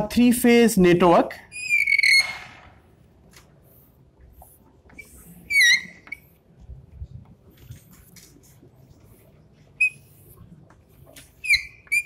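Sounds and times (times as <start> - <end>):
short high squeak: 1.5 - 2.5, 5.0 - 6.2.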